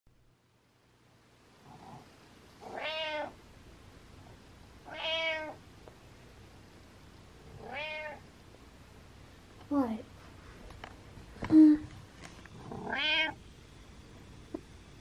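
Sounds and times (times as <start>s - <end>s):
cat meowing: 2.6s - 3.4s, 4.8s - 5.6s, 7.6s - 8.2s, 12.7s - 13.4s.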